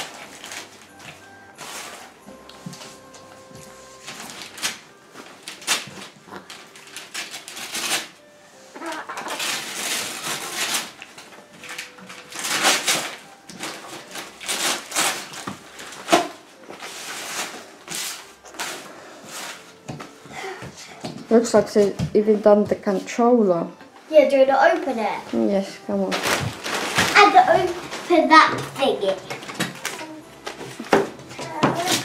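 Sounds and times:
wrapping paper tearing and crumpling: 0.0 - 1.0, 3.9 - 19.8, 25.9 - 32.0.

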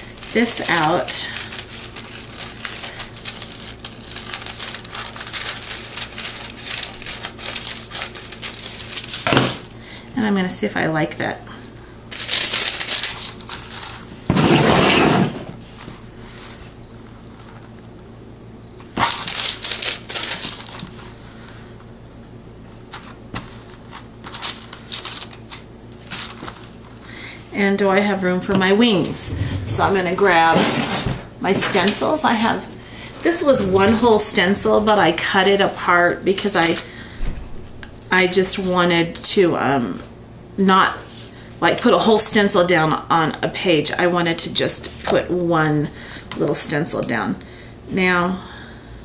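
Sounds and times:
paper rustling and crinkling: 0.1 - 9.6, 12.1 - 14.8, 15.6 - 17.9, 18.9 - 21.2, 22.9 - 27.1.

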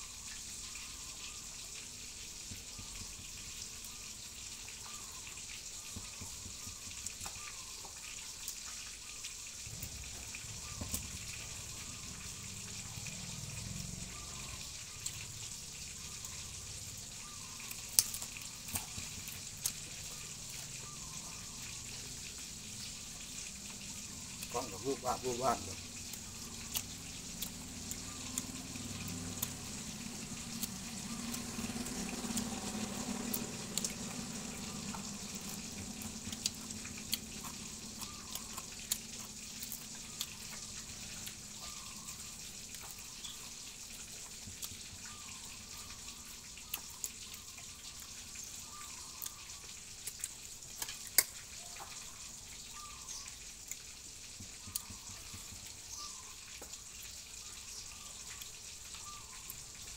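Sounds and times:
faint steady hiss: 0.0 - 59.9
man chewing food: 1.6 - 24.8, 25.6 - 52.7, 53.4 - 59.9.

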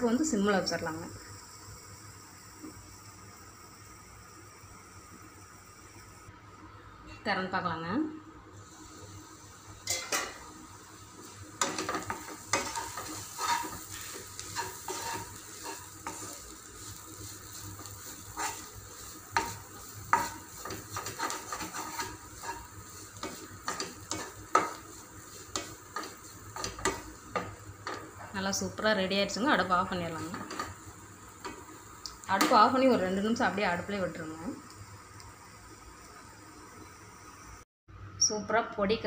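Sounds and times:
light sizzle: 0.0 - 39.0
spatula scraping a pan: 11.6 - 28.3.

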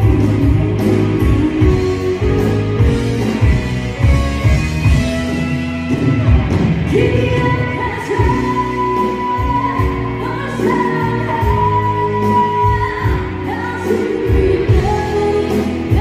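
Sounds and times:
rock band playing: 0.0 - 16.0
woman singing lead vocal: 6.8 - 16.0.

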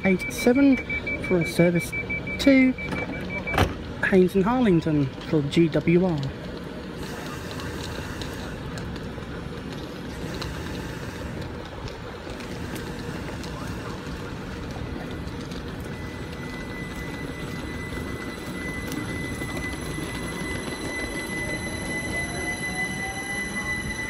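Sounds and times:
electric train hum and rumble: 0.0 - 24.0
traction motor whine: 7.0 - 24.0.

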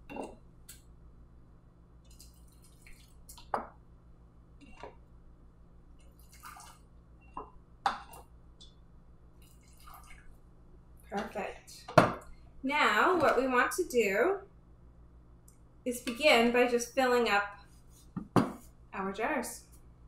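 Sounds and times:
syrup trickling and dripping: 9.3 - 10.4.

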